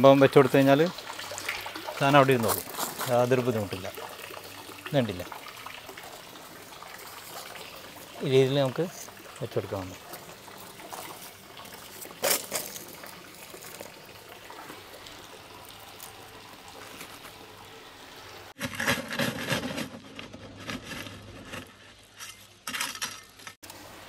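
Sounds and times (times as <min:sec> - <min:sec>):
water trickling through gravel: 0:00.0 - 0:18.6
trowel scraping gravel: 0:02.4 - 0:03.2, 0:12.2 - 0:12.9, 0:18.6 - 0:22.7
gravel stones clattering: 0:02.4 - 0:03.3, 0:10.1 - 0:13.9.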